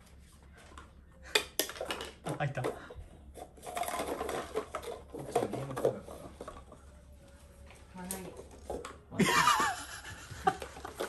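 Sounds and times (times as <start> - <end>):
paper cups clicking on wooden floor: 0.7 - 6.8.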